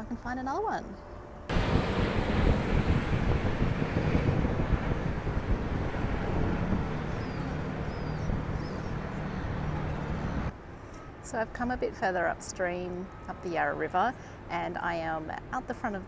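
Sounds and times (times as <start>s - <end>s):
helicopter rotor passing overhead: 1.4s - 10.5s.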